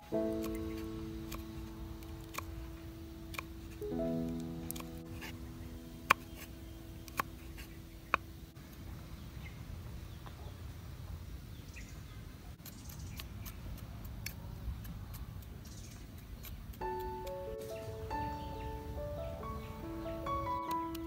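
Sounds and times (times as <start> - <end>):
background music: 0.0 - 8.6, 16.8 - 21.0.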